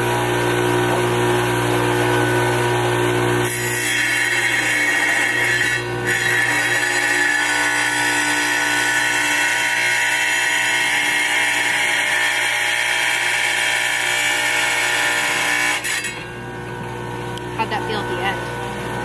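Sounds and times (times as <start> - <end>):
wet tile saw cutting tile: 3.2 - 16.4.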